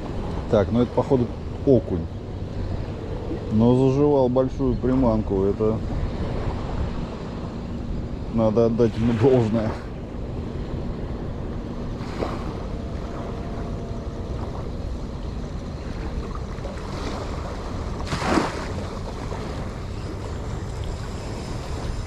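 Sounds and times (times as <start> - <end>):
wind buffeting microphone: 0.0 - 22.0
waves washing over shallow water: 8.0 - 22.0.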